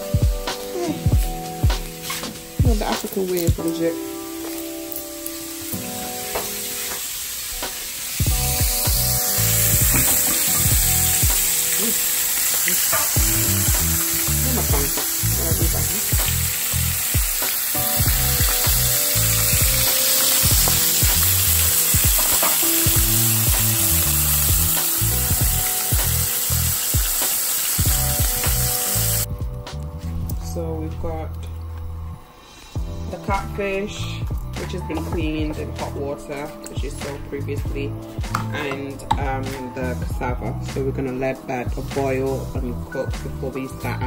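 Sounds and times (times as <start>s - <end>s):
background music with bass beat: 0.0s - 3.0s, 8.2s - 12.0s, 12.8s - 27.2s, 27.8s - 30.5s
fish sizzling in hot oil: 0.0s - 29.3s.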